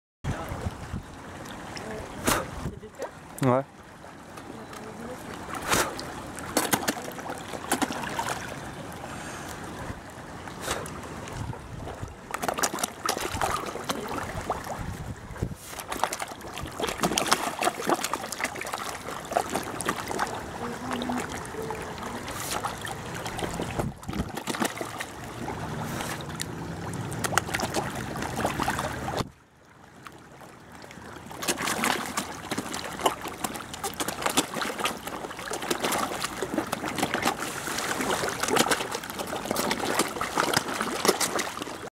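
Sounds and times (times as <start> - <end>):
fish splashing and gulping: 0.3 - 41.9.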